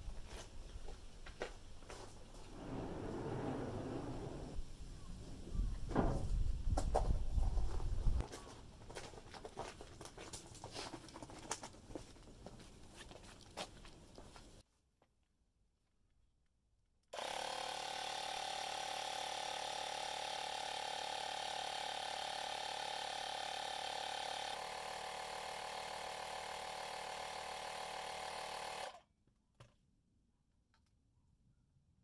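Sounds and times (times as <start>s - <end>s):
air compressor humming: 17.2s - 29.0s.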